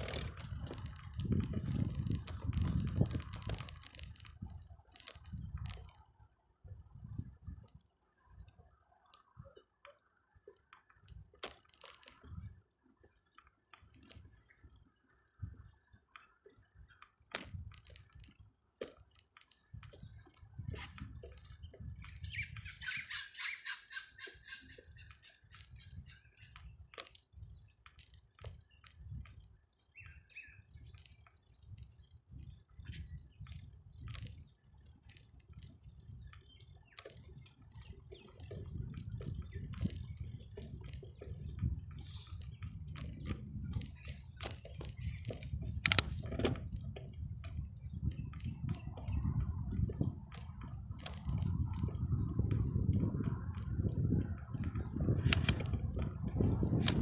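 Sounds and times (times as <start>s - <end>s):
wind buffeting on microphone: 0.0s - 6.0s, 6.6s - 8.7s, 12.2s - 12.6s, 15.3s - 15.8s, 16.8s - 18.5s, 19.5s - 57.0s
bicycle rattling clicks: 0.0s - 6.4s, 7.7s - 57.0s
bird chirps: 13.8s - 15.4s, 21.3s - 26.8s, 29.8s - 35.2s.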